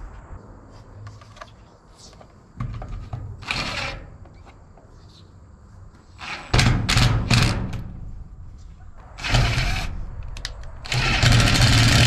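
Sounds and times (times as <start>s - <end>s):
impact driver on metal sheeting: 6.2s - 8.0s, 10.9s - 12.0s.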